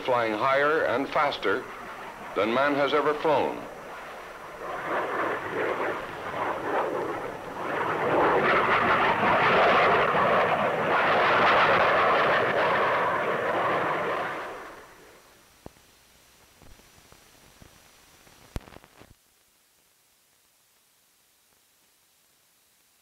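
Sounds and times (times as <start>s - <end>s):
jet aircraft roar: 0.0s - 15.4s.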